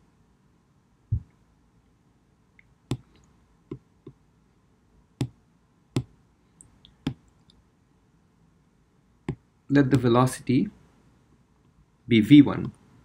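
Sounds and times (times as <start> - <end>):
stylus tapping on glass screen: 2.9 - 3.1.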